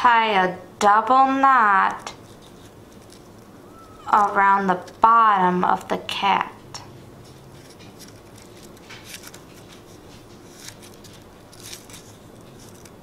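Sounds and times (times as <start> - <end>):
ribbon and card rustling: 1.6 - 5.2, 7.2 - 13.0
soft brushing: 2.1 - 4.4.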